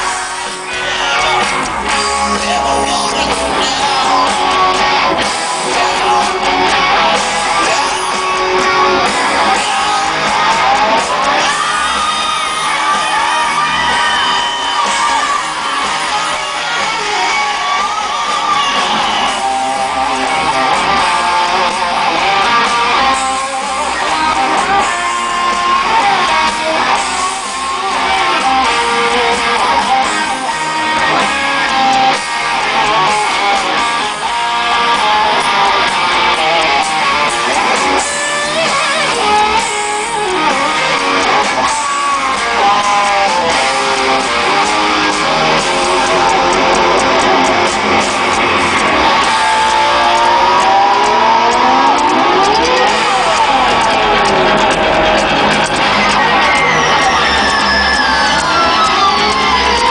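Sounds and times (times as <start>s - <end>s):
electric guitar: 0.0s - 59.9s
live rock band: 0.0s - 59.9s.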